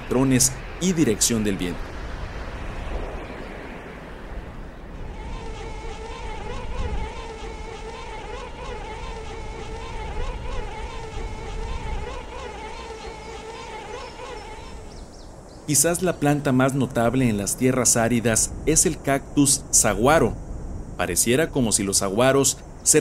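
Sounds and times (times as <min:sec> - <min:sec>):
buzzing hum: 0:00.0 - 0:16.2
wind rumble on microphone: 0:00.0 - 0:23.0.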